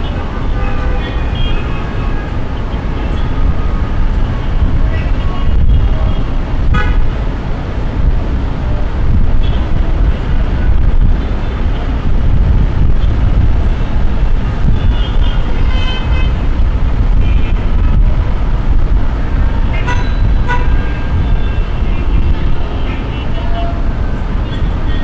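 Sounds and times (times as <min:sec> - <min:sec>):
car horn toots: 0:00.0 - 0:03.7, 0:05.4 - 0:07.1, 0:14.5 - 0:18.0, 0:19.8 - 0:23.8
traffic rumble: 0:00.0 - 0:25.0.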